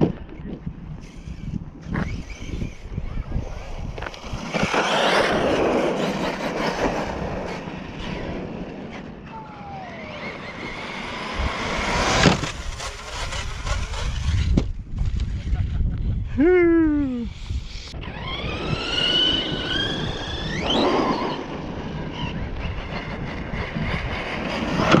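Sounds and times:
rc truck motor and tyres on asphalt: 0.0s - 25.0s.

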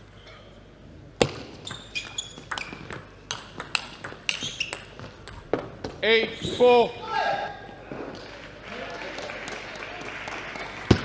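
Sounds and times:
table tennis ball hitting paddles: 1.2s - 6.0s.

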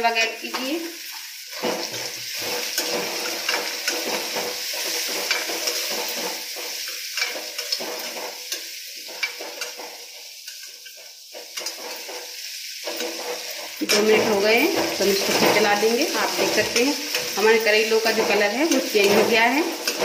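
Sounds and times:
vegetables sizzling in oil: 0.0s - 20.0s
metal spatula scraping pan: 1.5s - 20.0s.

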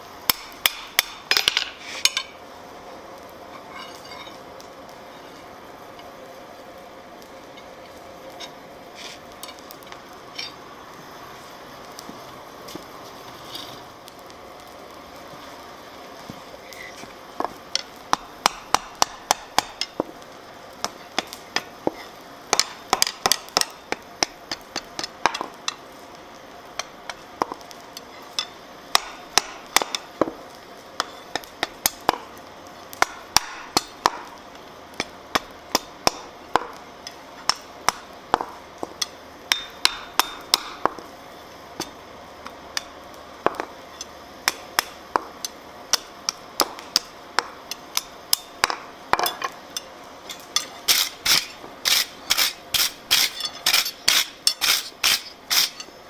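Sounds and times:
low hiss: 0.0s - 56.0s
mallet striking steel on anvil: 0.3s - 2.3s, 18.4s - 20.0s, 28.4s - 30.0s, 33.0s - 34.3s, 37.5s - 41.0s.

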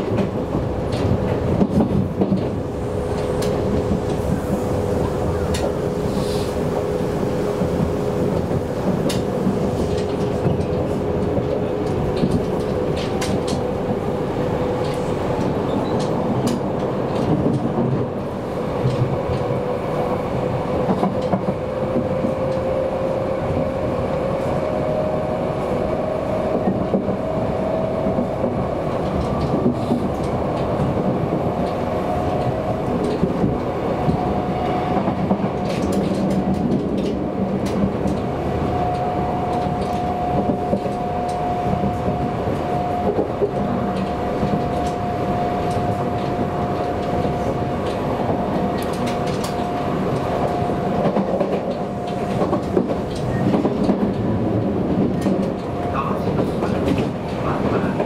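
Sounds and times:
train rolling noise: 0.0s - 58.0s
wheels clicking over rail joints: 6.8s - 19.6s.

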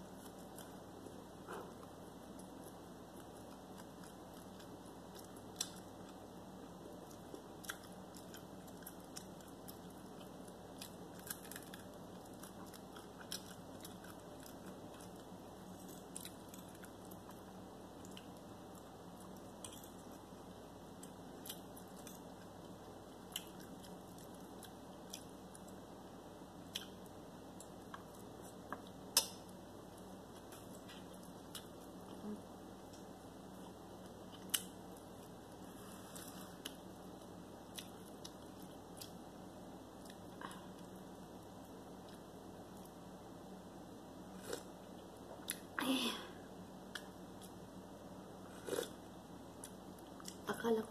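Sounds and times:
person chewing food: 0.1s - 25.8s, 26.7s - 39.2s, 44.4s - 45.7s, 48.5s - 49.0s.

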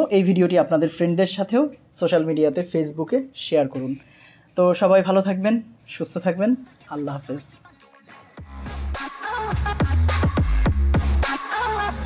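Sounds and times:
electronic music with heavy bass: 6.7s - 12.0s.

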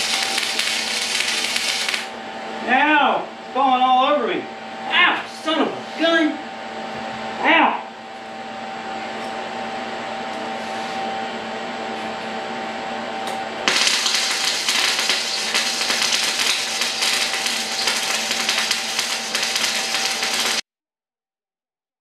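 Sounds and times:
arc welder crackling sizzle: 0.0s - 2.2s, 13.6s - 20.6s
steady hum: 0.0s - 20.6s.

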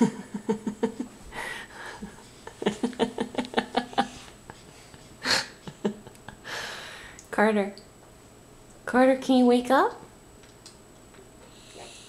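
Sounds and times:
stifled breathy giggling: 0.0s - 6.6s
breathing: 1.3s - 2.0s, 6.4s - 7.2s, 11.4s - 12.0s.

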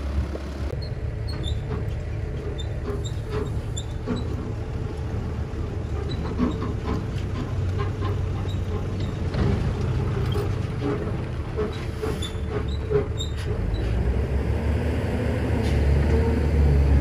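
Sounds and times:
truck knocks and rattles: 0.0s - 14.3s
dump truck diesel engine: 0.0s - 17.0s.

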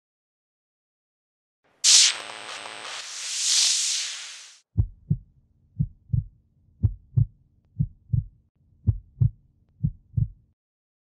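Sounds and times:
heartbeat thumps: 4.8s - 10.4s.

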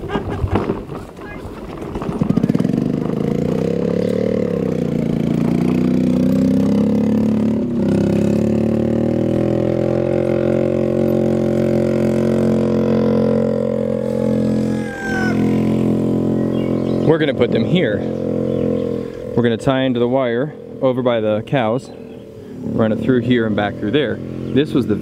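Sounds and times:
small engine running: 2.0s - 19.4s.

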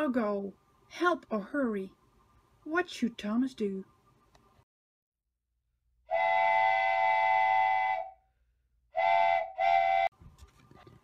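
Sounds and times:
steam train whistle: 6.1s - 8.2s, 9.0s - 10.1s.

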